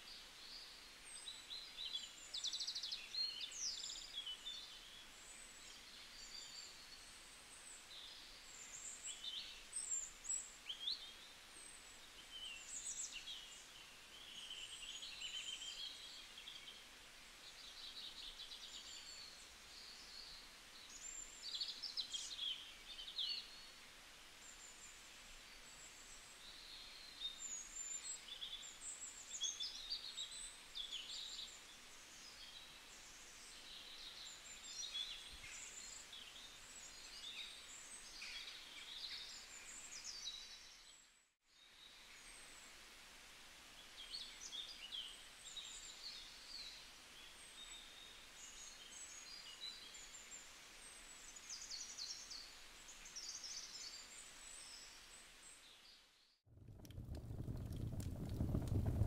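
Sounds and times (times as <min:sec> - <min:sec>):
soft steady hiss: 0:00.0 - 0:59.0.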